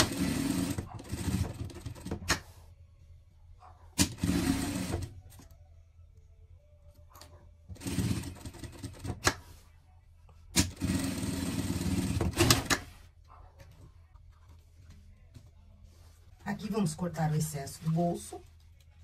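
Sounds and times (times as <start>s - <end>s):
sewing machine stitching fabric: 0.0s - 2.4s, 4.0s - 5.1s, 7.7s - 9.4s, 10.6s - 12.9s.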